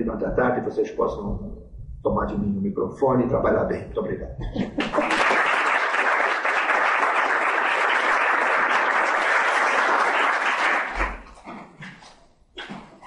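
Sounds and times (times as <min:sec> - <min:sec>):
audience applauding: 0:04.7 - 0:11.4.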